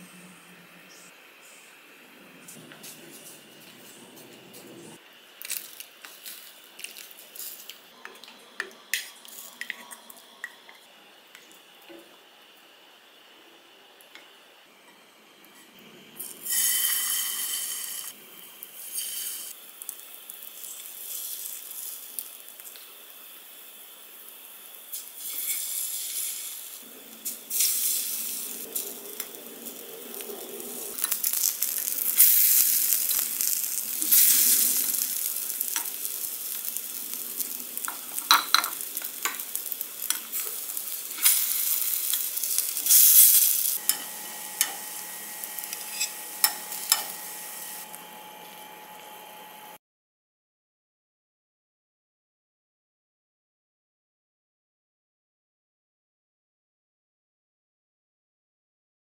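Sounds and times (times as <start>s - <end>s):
batter sizzling in hot oil: 5.0s - 13.3s, 13.9s - 49.8s
metal bowl and utensils clinking: 37.8s - 40.5s, 41.2s - 47.4s.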